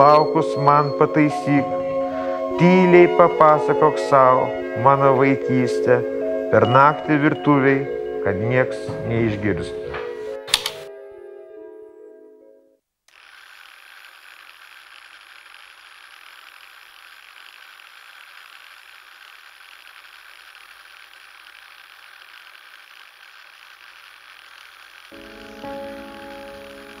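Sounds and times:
music: 0.0 - 12.8, 25.2 - 27.0
mechanical running noise with hiss: 13.1 - 27.0.

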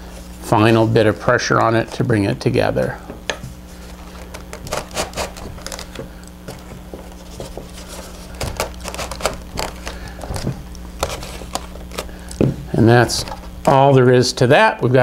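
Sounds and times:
steady low hum: 0.0 - 15.0
foam parts clicking and creaking: 3.9 - 13.8.

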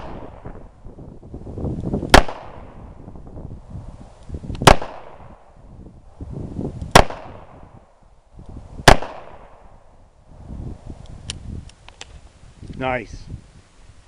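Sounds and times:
handgun shots: 4.6 - 5.2, 8.9 - 9.6.

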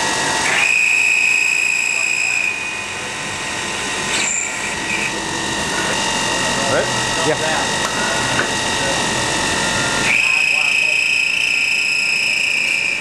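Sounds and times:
machine running: 0.0 - 13.0
high-pitched metal cutting squeal: 0.4 - 2.8, 4.1 - 6.2, 9.5 - 13.0.

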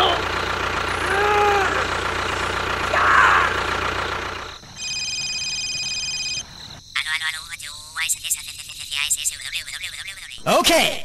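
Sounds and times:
tractor engine running: 0.0 - 8.0
loud squeal-like cry: 1.0 - 1.8, 2.9 - 3.6
electronic ringing tones: 4.7 - 10.4.

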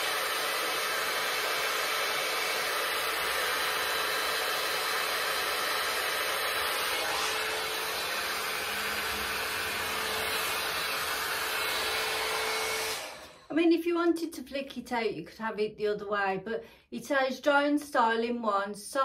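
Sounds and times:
hot air brush fan blowing: 0.0 - 13.5.

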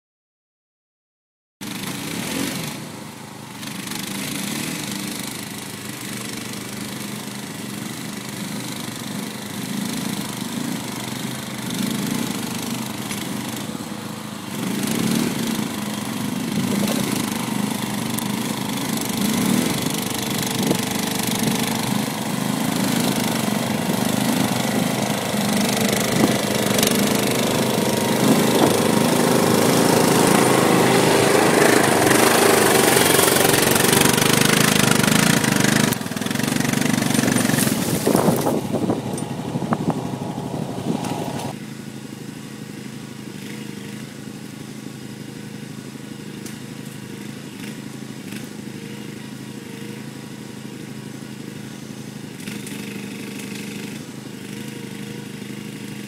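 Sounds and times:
atv engine running: 1.6 - 56.0.

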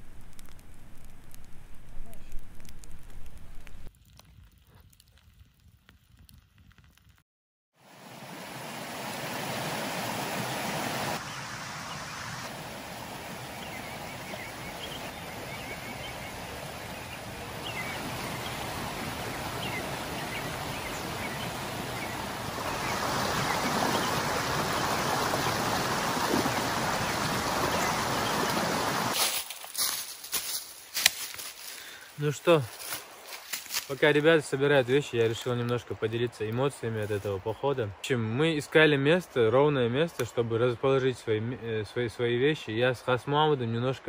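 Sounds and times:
stream rushing over stones: 7.8 - 37.5.

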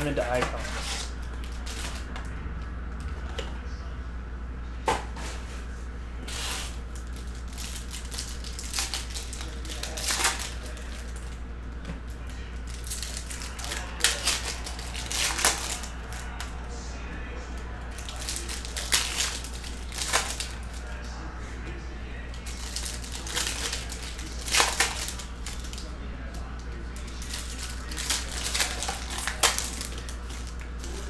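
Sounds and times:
foil wrappers crinkling: 0.0 - 2.2, 6.2 - 11.4, 12.0 - 16.5, 17.6 - 21.2, 22.3 - 31.0
steady low hum: 0.0 - 31.0
pack torn open: 7.3 - 11.2, 12.6 - 16.4, 17.9 - 20.9, 22.4 - 25.9, 27.0 - 31.0.

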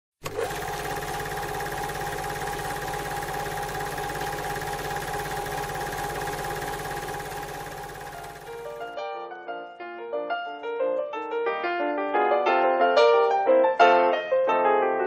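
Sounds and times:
film projector whirring and clattering: 0.2 - 9.0.

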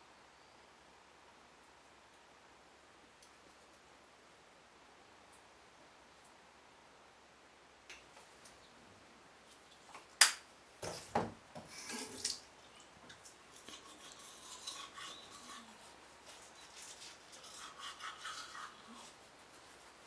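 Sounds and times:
teeth brushing: 13.5 - 19.6.

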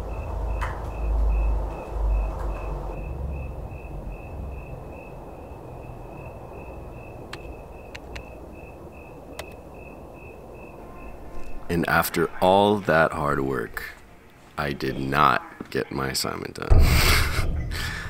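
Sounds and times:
low brown noise: 0.0 - 18.0.

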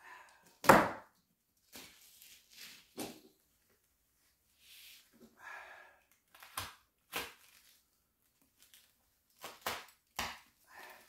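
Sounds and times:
wrapping rustling: 6.3 - 11.0.

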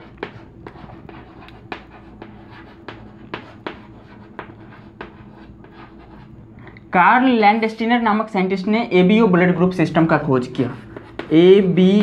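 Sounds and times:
chalk tapping and scratching: 0.0 - 6.4, 10.2 - 12.0
faint low hum: 0.0 - 12.0.

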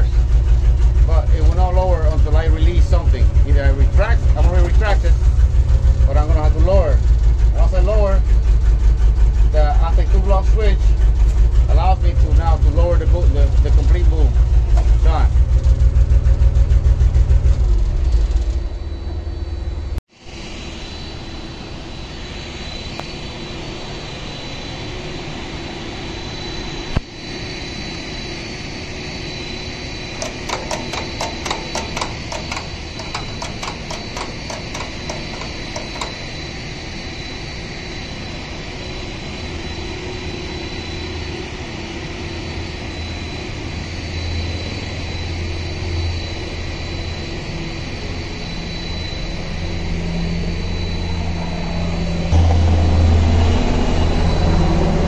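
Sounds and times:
crane engine throbbing: 0.0 - 26.9, 27.6 - 55.0
machine drone with high whine: 0.0 - 55.0
sharp knock: 30.2 - 36.3
rapid clicks: 30.2 - 36.5.

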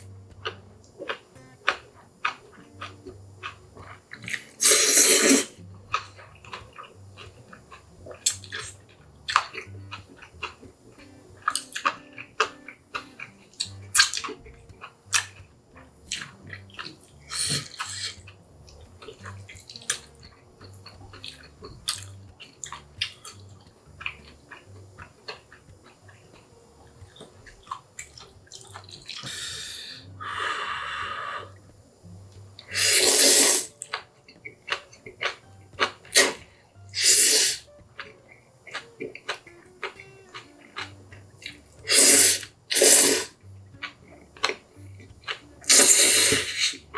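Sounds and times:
wet chewing and mouth clicks: 0.0 - 30.2, 32.3 - 46.9
slurping noodles: 4.2 - 5.6, 17.2 - 18.3, 32.7 - 33.7, 36.1 - 37.6, 41.8 - 43.4, 45.7 - 46.8.

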